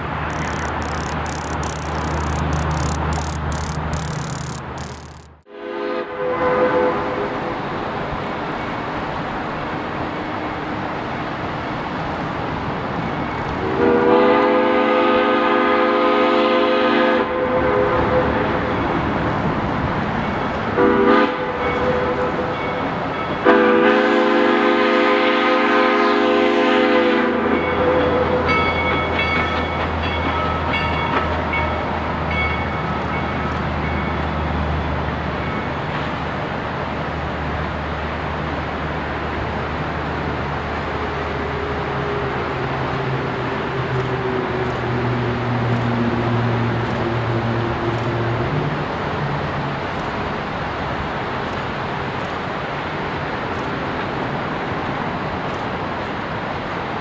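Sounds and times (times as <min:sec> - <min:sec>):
steam whistle blasts: 0:13.7 - 0:18.3, 0:23.5 - 0:28.1.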